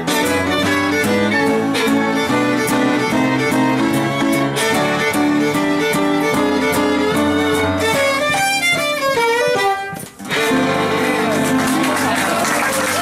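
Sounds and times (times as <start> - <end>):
fiddle guitar and piano tune: 0.0 - 13.0
audience applause: 10.9 - 13.0.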